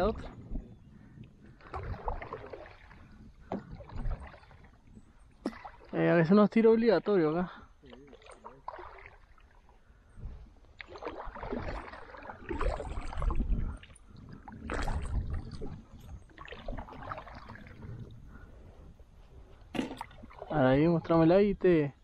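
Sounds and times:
water sloshing and dripping: 1.2s - 6.4s, 7.0s - 18.8s, 19.4s - 21.2s
paddle splashing in water: 1.4s - 6.2s, 7.8s - 18.4s, 19.4s - 20.9s.

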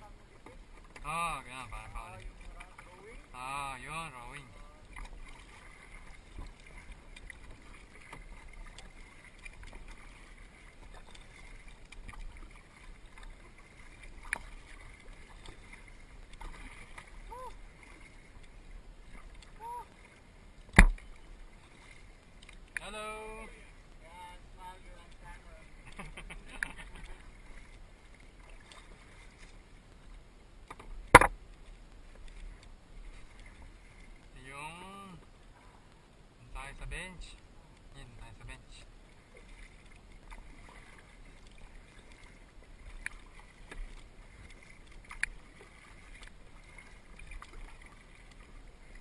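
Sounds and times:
paddles splashing through water: 0.0s - 49.0s
water dripping from paddles: 0.3s - 30.0s, 38.7s - 49.0s
sharp click: 20.7s - 21.0s, 30.7s - 31.4s
small knocks: 20.7s - 21.0s, 30.7s - 31.4s.

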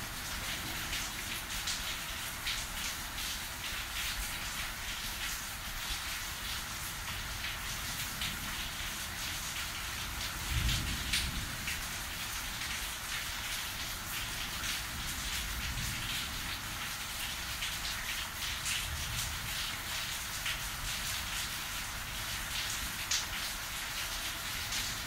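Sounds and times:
rain hissing: 0.0s - 25.0s
raindrops ticking: 22.6s - 25.0s.

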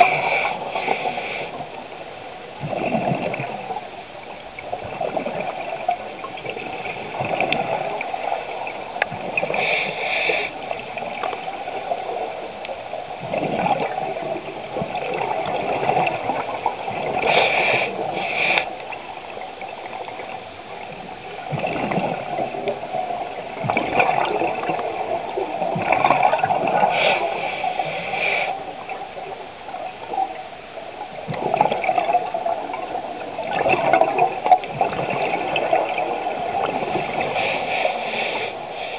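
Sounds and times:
regulator hiss on inhale: 0.0s - 1.8s, 9.4s - 10.8s, 17.1s - 18.9s, 26.8s - 28.8s, 37.2s - 38.9s
underwater bubbles gurgling: 0.0s - 38.9s.

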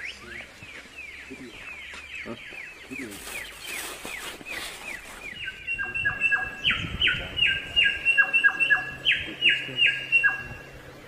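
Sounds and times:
songbird whistling downward notes: 2.5s - 10.8s.

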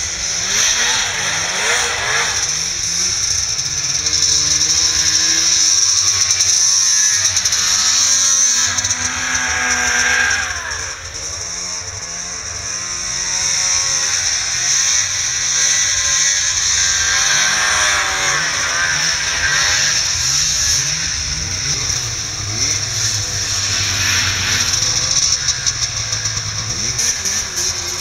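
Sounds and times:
snowmobile engine revving: 0.0s - 28.0s.

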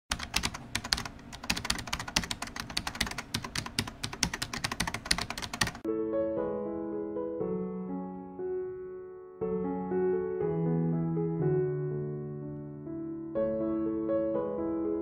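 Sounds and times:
keyboard typing clicks: 0.1s - 5.8s
soft electric piano music: 0.1s - 15.0s.

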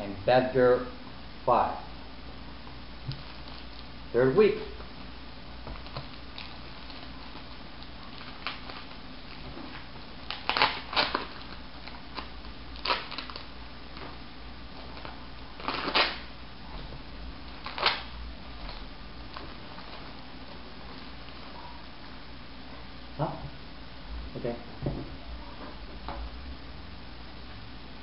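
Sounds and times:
plastic wrapping crinkling: 3.0s - 4.0s, 4.9s - 16.3s, 17.4s - 21.6s.

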